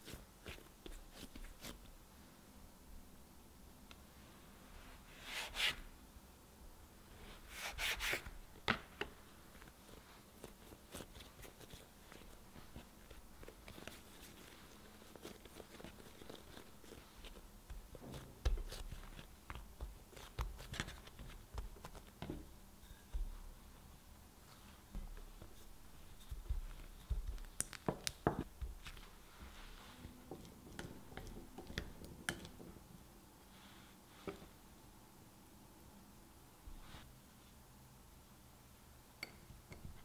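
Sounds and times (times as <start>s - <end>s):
dough squishing and tapping: 10.4s - 23.7s, 24.9s - 32.9s.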